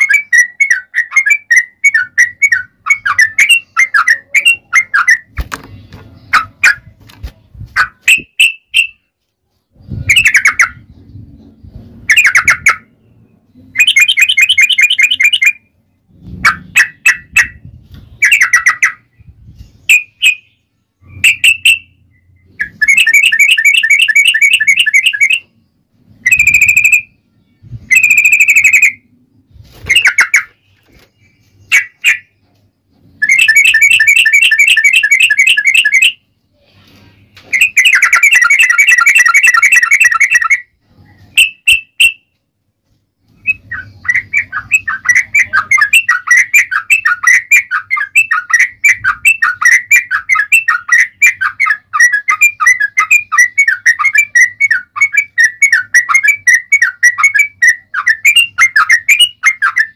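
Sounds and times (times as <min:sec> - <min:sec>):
bird singing rolling trills: 0:00.0 - 0:36.6, 0:37.2 - 0:42.4, 0:43.1 - 0:59.9
sharp bird chirps: 0:09.7 - 0:42.4.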